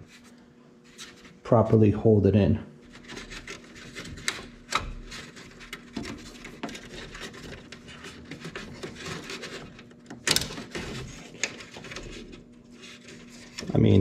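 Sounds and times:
zip tie rubbing on plastic grille: 2.8s - 14.0s.

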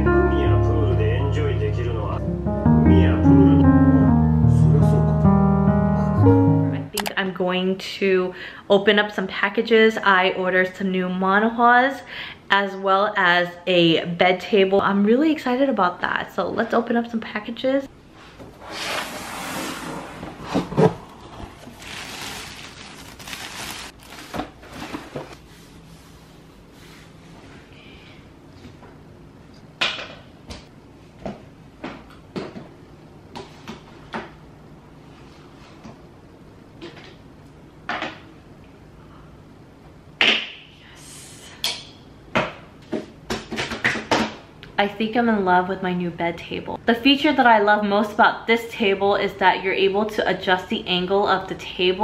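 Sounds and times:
plastic wrapping rustling: 20.6s - 25.4s.

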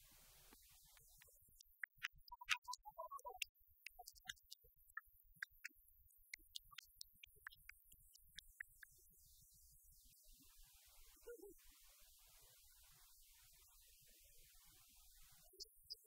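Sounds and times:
faint irregular clicks: 0.5s - 10.4s.

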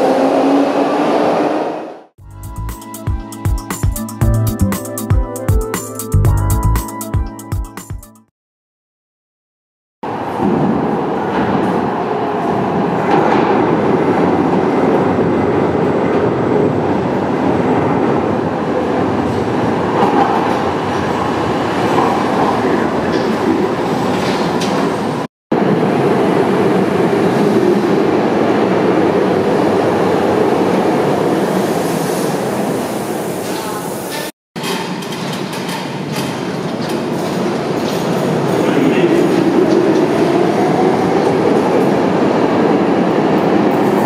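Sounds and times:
train wheels running on rails: 18.6s - 44.0s.

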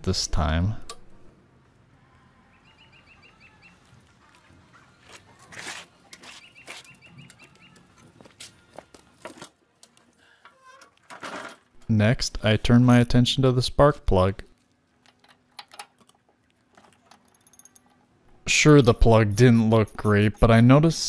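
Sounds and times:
small bird chirping: 2.5s - 3.9s, 6.3s - 8.0s.

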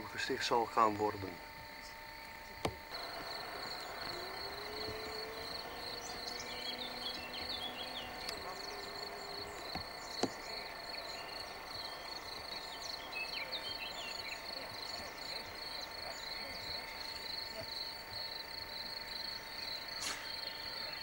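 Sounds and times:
faint hum: 0.0s - 21.0s
insects chirring: 0.0s - 21.0s
small birds chirping: 1.8s - 21.0s
sharp click: 20.0s - 20.4s.

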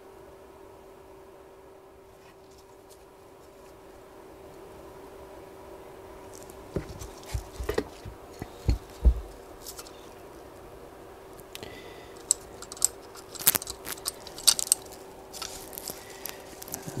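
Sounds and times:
dull thumps: 6.7s - 9.6s
sharp metallic clicks: 12.2s - 15.6s.

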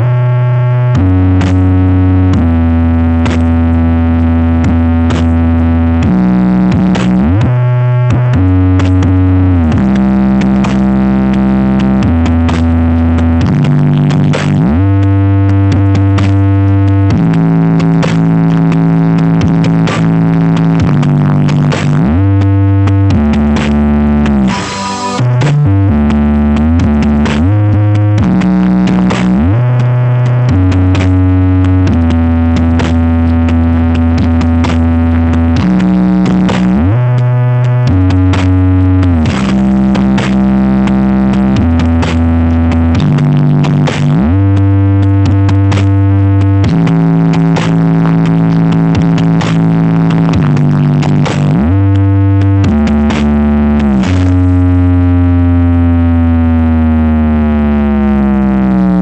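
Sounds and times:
electronic dance music: 0.0s - 59.0s
low droning synth note: 24.3s - 26.0s.

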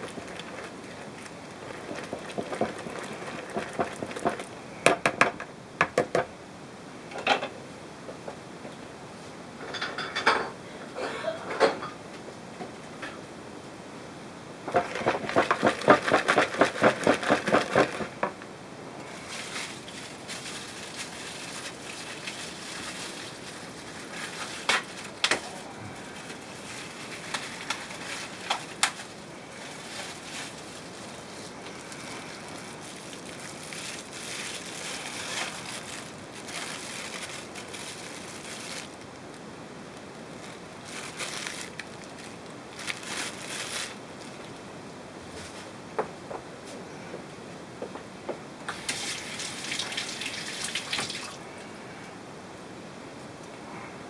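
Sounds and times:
whisk beating in plastic bowl: 0.0s - 4.5s, 14.7s - 18.4s
plastic bag crinkling: 0.0s - 4.7s, 14.6s - 18.4s, 19.0s - 44.7s, 48.7s - 51.4s.

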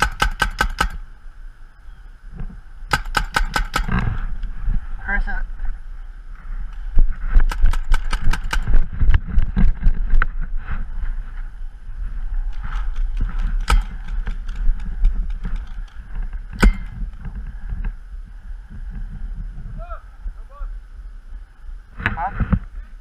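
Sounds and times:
sharp clicks or pops: 0.0s - 1.0s, 2.9s - 4.5s, 7.4s - 9.2s, 12.5s - 17.3s
wind rumble on microphone: 0.8s - 23.0s
loud cracks: 2.9s - 4.2s, 7.4s - 8.8s, 12.6s - 15.9s.

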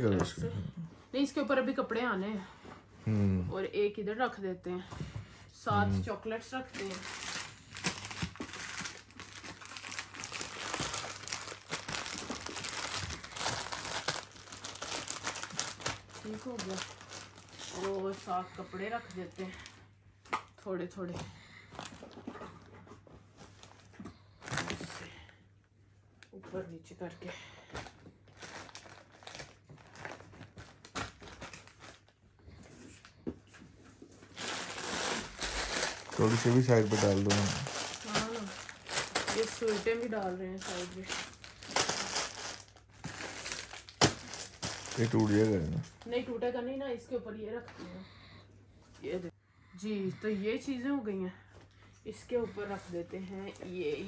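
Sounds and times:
plastic wrappers crinkling: 6.5s - 18.4s, 27.8s - 32.2s, 34.1s - 46.3s.

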